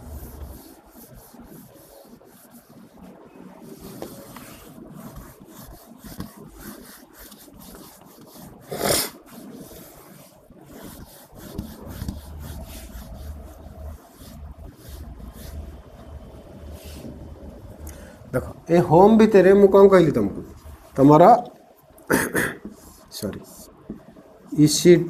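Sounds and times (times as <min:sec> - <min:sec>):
low hum: 0:00.0 - 0:05.4, 0:11.4 - 0:21.0
rubbing and scraping on a board: 0:00.0 - 0:16.0.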